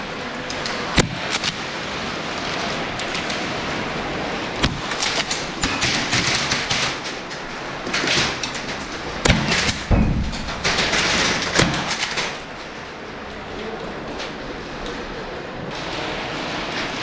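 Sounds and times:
sharp knocks and thumps: 0:08.1 - 0:12.4.

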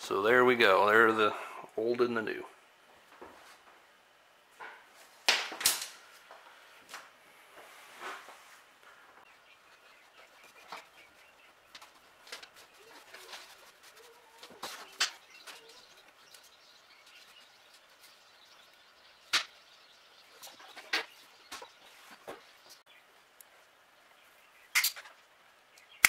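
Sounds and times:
wires rustling: 0:04.5 - 0:22.8.

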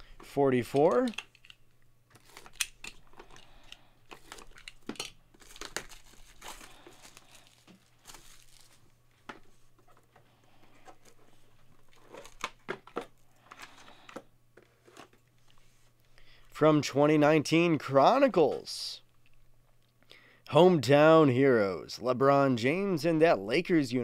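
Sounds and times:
cardboard crinkling and tearing: 0:04.1 - 0:08.9.

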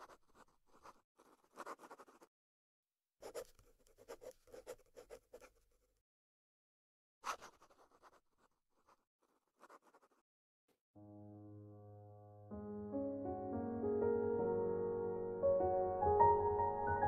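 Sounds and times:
marker pen scratching: 0:00.0 - 0:02.3, 0:03.2 - 0:05.9, 0:07.2 - 0:10.2.

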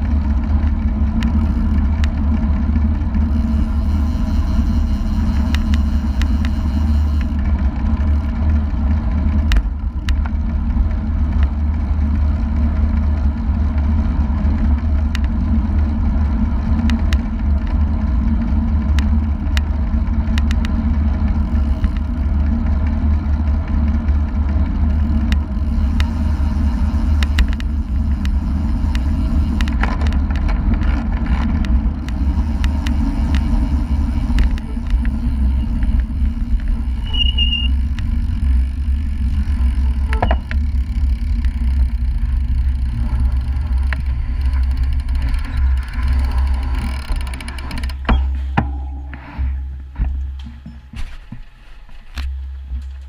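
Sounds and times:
bicycle tyre noise: 0:00.0 - 0:53.0
short high squeak: 0:37.0 - 0:37.9, 0:40.0 - 0:40.5, 0:48.0 - 0:48.6.

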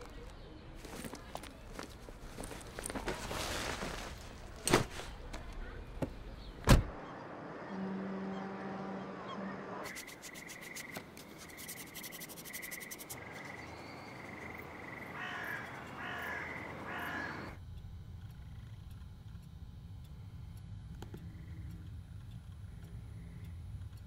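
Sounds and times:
birds calling: 0:13.2 - 0:17.6
room hum: 0:17.5 - 0:24.0.

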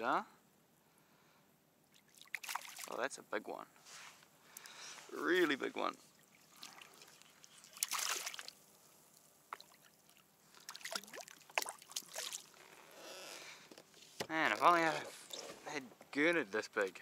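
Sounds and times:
fish thrashing water splashing: 0:02.0 - 0:03.0, 0:06.2 - 0:08.6, 0:09.6 - 0:12.6.

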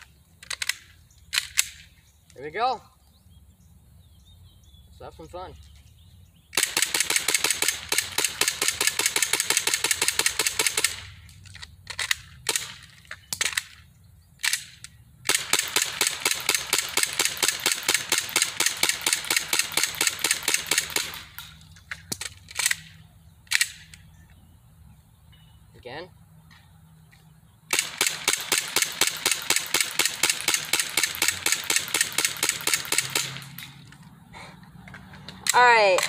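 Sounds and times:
airsoft pistol shots: 0:06.6 - 0:11.1, 0:14.4 - 0:21.6, 0:27.7 - 0:33.8.

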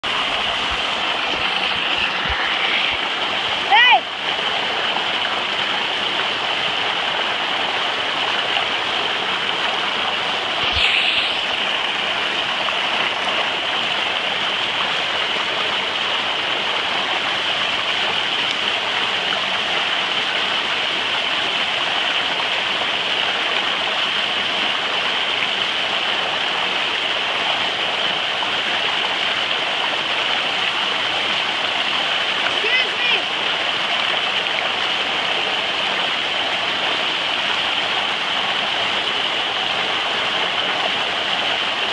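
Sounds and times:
water splashing: 0:00.0 - 0:19.7
water rushing down a slide: 0:00.0 - 0:41.9.

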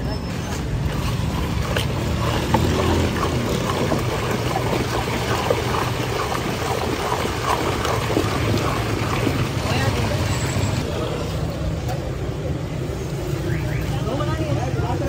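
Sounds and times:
ladle sloshing ice in milk: 0:00.5 - 0:10.8
ice clinking: 0:00.8 - 0:10.3.

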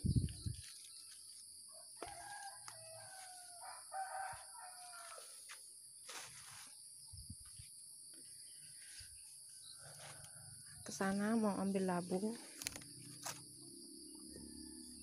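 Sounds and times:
high-pitched insect chorus: 0:00.0 - 0:15.0
rooster crowing: 0:01.7 - 0:05.4.

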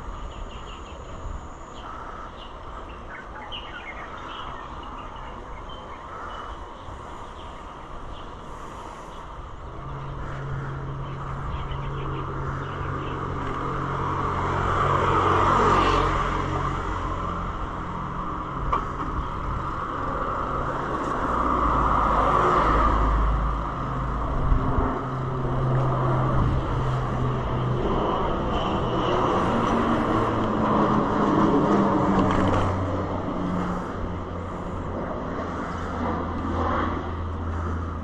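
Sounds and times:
steady low hum: 0:00.0 - 0:14.8
passing traffic: 0:00.0 - 0:38.0.

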